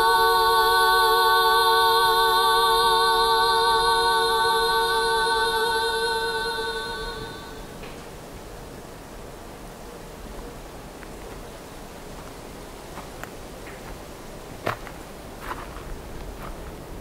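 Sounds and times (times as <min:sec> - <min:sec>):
woman singing a long note: 0:00.0 - 0:07.9
faint steady hiss: 0:00.0 - 0:17.0.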